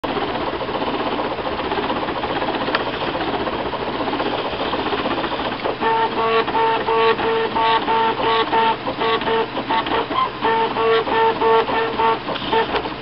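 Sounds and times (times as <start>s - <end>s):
stepper motors chattering: 0.2s - 13.0s
short pitched motor whines: 4.3s - 13.0s.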